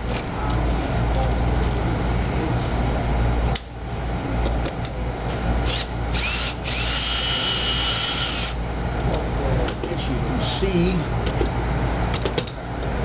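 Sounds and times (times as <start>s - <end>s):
cordless drill whining: 5.6s - 8.6s.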